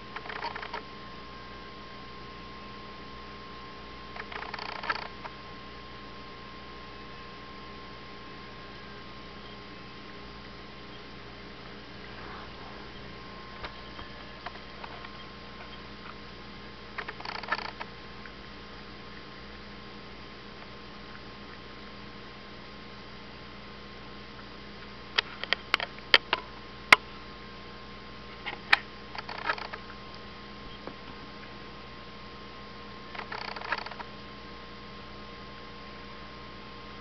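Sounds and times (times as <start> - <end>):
steady electrical hum: 0.0 - 37.0
sharp clicks: 0.2 - 0.8, 4.2 - 5.3, 17.0 - 17.9.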